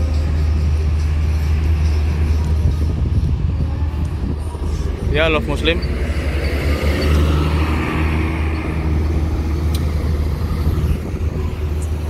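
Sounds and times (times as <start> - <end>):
bus engine rumbling: 0.0 - 12.0.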